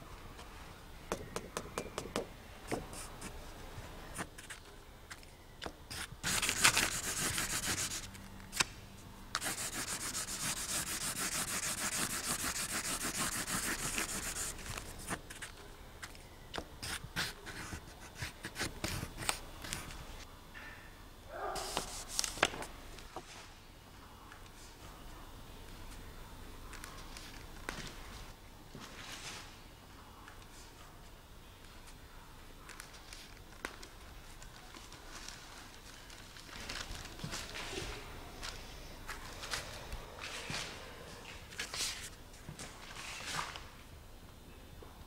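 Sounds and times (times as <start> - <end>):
drawing stick scrubbing paper: 5.9 - 8.2, 9.3 - 15.5
paper handling: 5.9 - 16.2, 21.6 - 23.4, 32.6 - 40.7.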